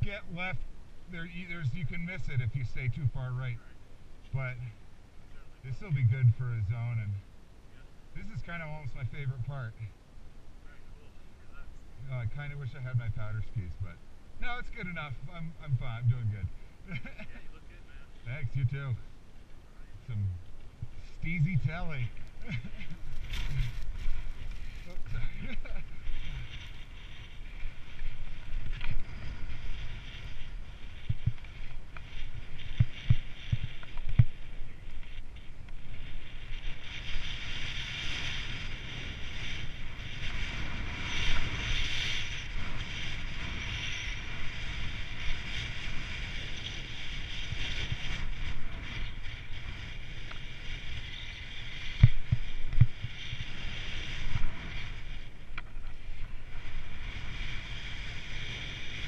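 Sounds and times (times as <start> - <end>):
wind rushing over microphone: 19.9 - 59.0
skis sliding over snow: 21.0 - 59.0.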